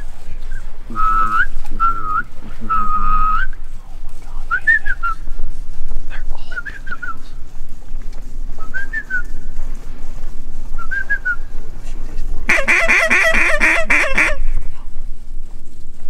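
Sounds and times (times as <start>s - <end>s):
rapid honking calls: 12.5s - 14.6s.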